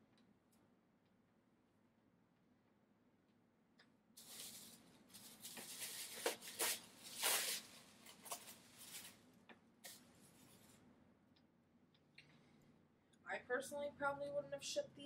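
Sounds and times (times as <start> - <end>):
hands rustling faux fur: 4.2 - 9.2.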